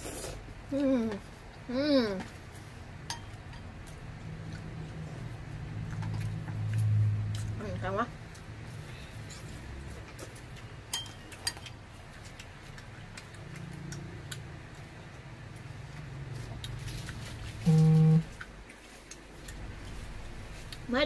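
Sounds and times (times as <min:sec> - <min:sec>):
short steady hum: 0:17.6 - 0:18.4.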